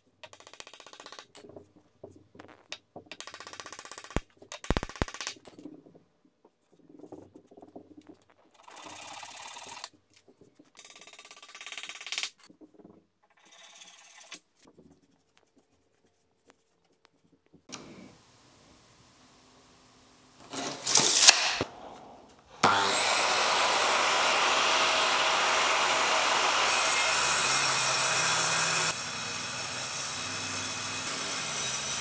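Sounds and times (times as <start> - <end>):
hand saw sawing wood: 22.5 - 32.0.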